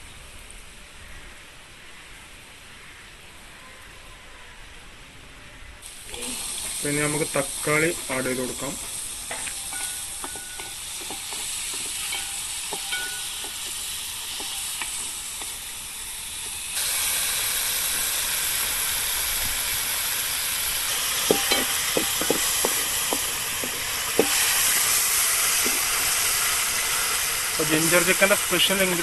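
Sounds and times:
vegetables sizzling in oil: 5.8 - 29.0
ladle knocking against pot: 21.3 - 24.4.

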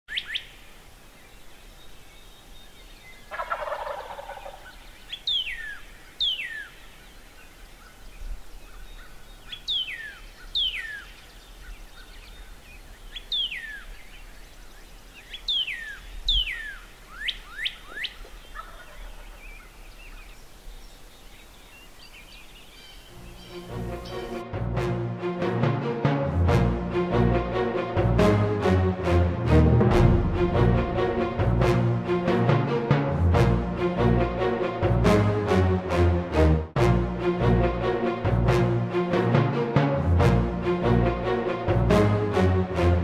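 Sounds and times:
songbird whistling: 0.1 - 0.5, 4.5 - 6.8, 8.7 - 11.2, 13.1 - 14.0, 15.2 - 18.7, 22.8 - 24.4
turkey gobbling: 3.3 - 6.7, 15.5 - 20.2, 23.3 - 24.4.

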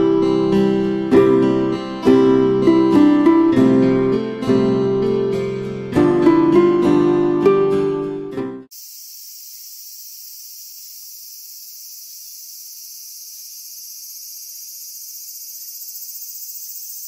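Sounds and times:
insect chorus: 8.7 - 17.0.

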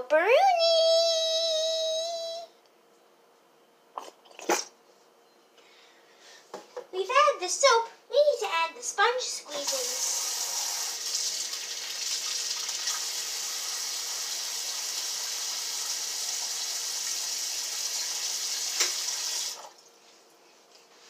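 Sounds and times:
faucet running: 9.5 - 19.8.

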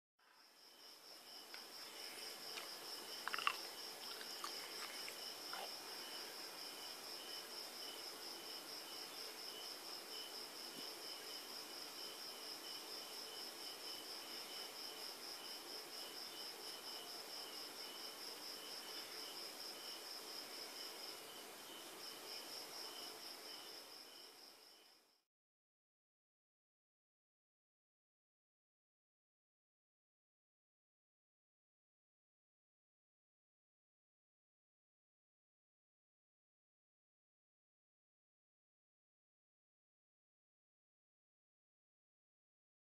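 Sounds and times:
cricket chirping: 0.2 - 25.2.

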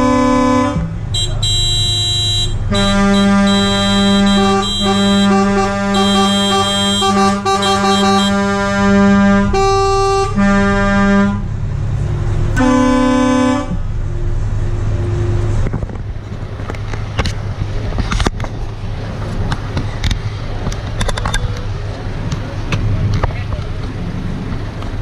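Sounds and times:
truck horn blasts: 0.0 - 11.6, 12.6 - 13.9.

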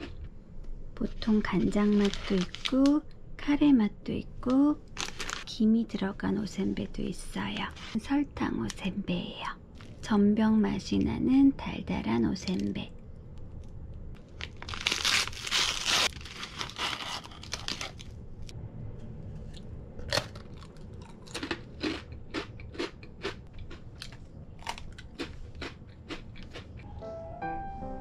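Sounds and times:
plastic wrappers crinkling: 1.4 - 3.0, 4.9 - 5.6, 14.2 - 18.2.

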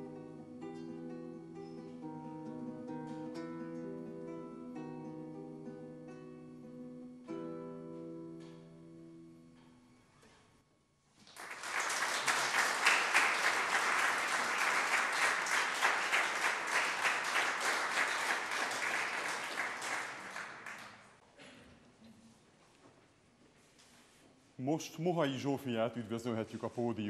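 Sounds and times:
classical guitar chord: 0.0 - 10.0
audience applauding: 11.2 - 21.2.

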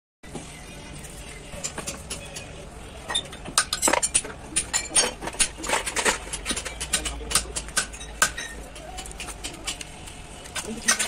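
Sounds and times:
metal parts clinking in metal pan: 3.1 - 7.2.

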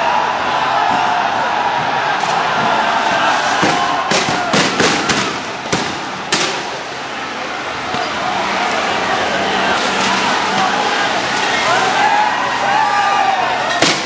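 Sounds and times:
street noise: 0.0 - 14.0
tear gas rounds banging: 2.2 - 6.8.

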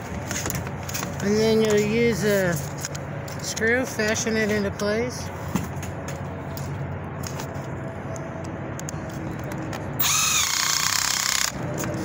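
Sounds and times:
cordless drill driving screw into metal: 10.0 - 11.6.

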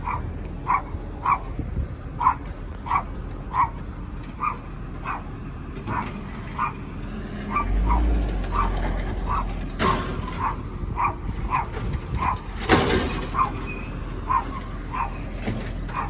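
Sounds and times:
dog barking: 0.0 - 1.5, 2.2 - 3.8, 4.4 - 5.3, 5.9 - 6.8, 7.5 - 12.5, 13.3 - 15.3
low engine rumble: 0.0 - 16.0.

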